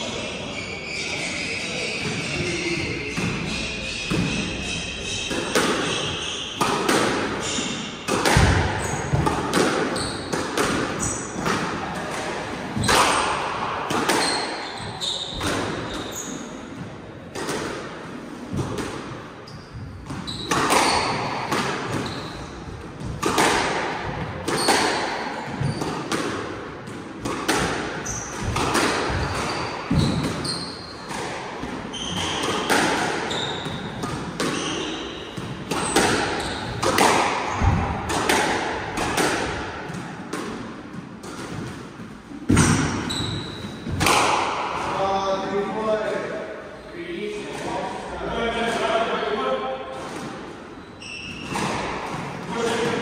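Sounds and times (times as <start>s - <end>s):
squash ball hitting rackets and walls: 1.9s - 46.5s, 49.7s - 53.0s
shoes squeaking on wooden floor: 9.9s - 10.4s, 14.2s - 16.5s, 19.5s - 22.6s, 25.4s - 26.0s, 28.0s - 37.9s, 42.5s - 43.9s, 50.7s - 51.8s.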